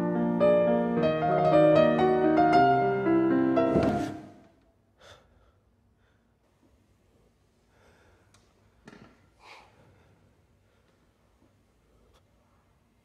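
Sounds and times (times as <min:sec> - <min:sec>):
faint breaths: 0:07.6 - 0:12.4.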